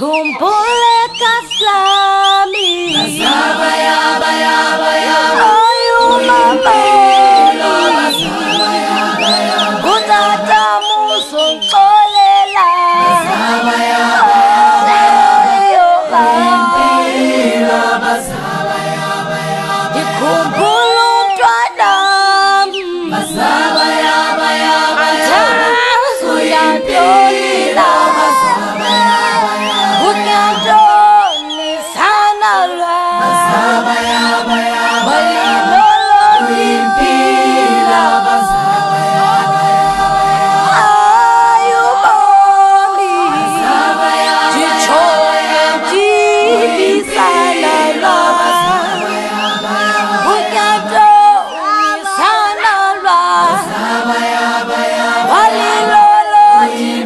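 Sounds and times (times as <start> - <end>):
unaccompanied choir singing: 0.0 - 57.0
high voice sliding: 5.1 - 13.2, 23.1 - 31.2.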